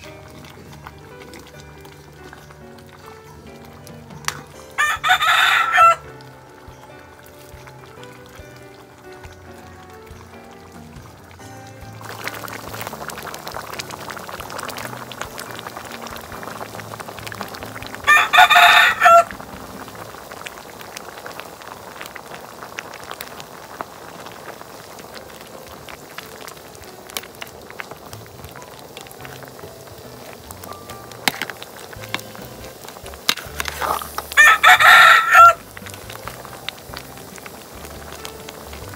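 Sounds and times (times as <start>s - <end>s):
rooster crowing: 4.8s - 6.2s, 18.0s - 19.4s, 34.4s - 35.7s
ladle stirring simmering pot: 20.1s - 34.6s.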